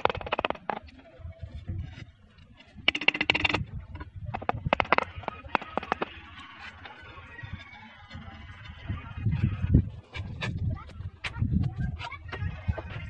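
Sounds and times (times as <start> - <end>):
trowel tapping roof tiles: 0.0 - 0.9, 2.9 - 3.6, 4.4 - 6.1.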